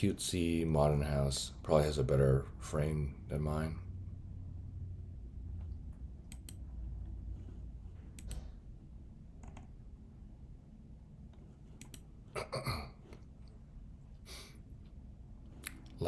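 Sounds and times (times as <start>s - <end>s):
low steady hum: 0.0s - 16.0s
computer mouse clicks: 5.6s - 6.7s, 8.1s - 8.6s, 9.4s - 9.8s, 11.3s - 12.1s.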